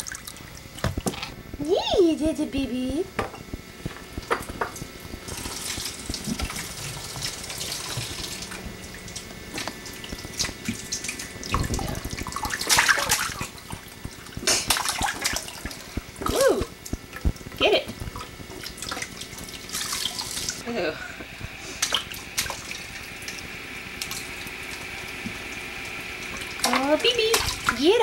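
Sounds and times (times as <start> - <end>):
faucet running: 3.8 - 28.0
water splashing: 4.2 - 20.6, 26.2 - 28.0.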